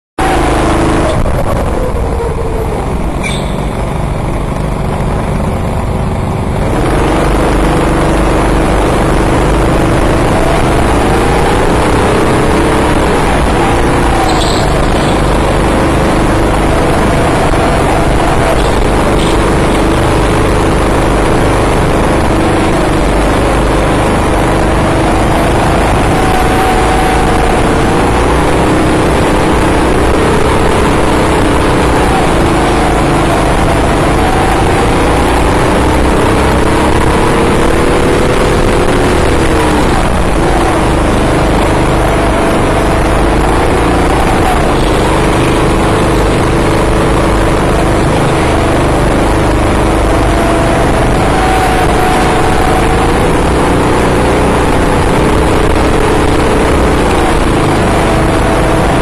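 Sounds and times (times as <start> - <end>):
go-kart engines revving: 0.2 - 59.0.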